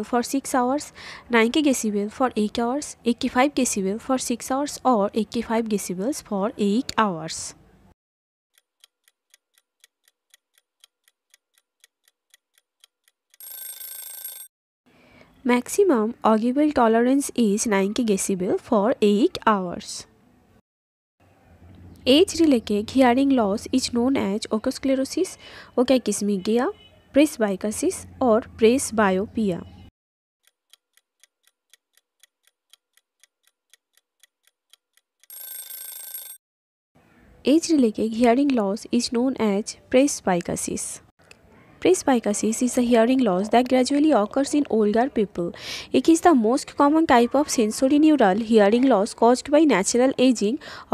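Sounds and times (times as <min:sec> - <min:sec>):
clock ticking: 0:08.5 - 0:13.5, 0:30.4 - 0:35.4.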